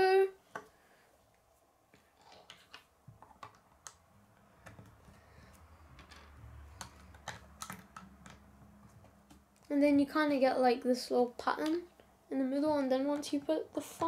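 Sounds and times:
plastic pieces snapping together: 6.8 - 8.5.

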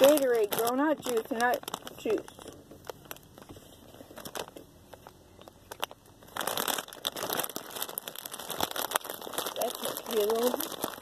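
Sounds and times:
foil snack bag crinkling: 0.0 - 11.0.

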